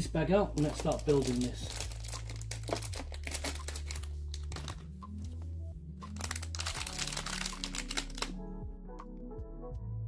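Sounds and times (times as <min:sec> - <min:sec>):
low background music: 0:00.0 - 0:10.0
plastic bag crinkling: 0:00.5 - 0:05.4, 0:06.0 - 0:08.4.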